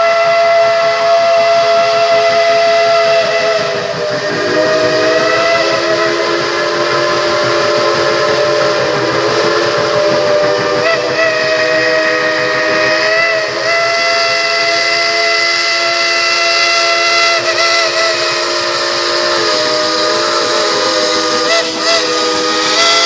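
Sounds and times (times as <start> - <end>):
steam locomotive whistle: 0.0 - 23.0
train approaching: 0.0 - 23.0.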